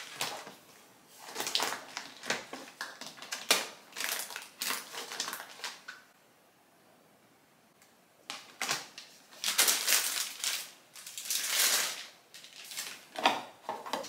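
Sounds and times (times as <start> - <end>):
plastic pack crinkling: 0.0 - 0.6, 1.2 - 6.0, 8.3 - 13.3.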